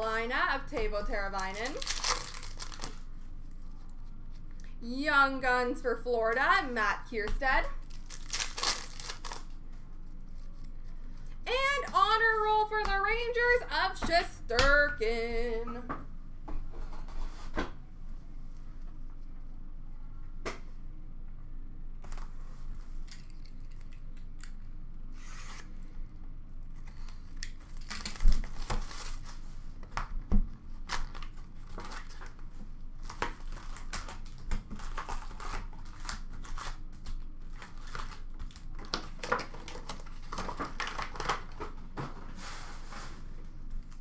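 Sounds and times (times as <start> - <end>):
foil wrappers crinkling: 1.3 - 3.1, 7.7 - 9.6, 27.0 - 29.4, 30.9 - 41.8
cardboard tearing and rustling: 1.5 - 3.0, 7.9 - 9.5, 27.7 - 29.4, 33.0 - 41.7.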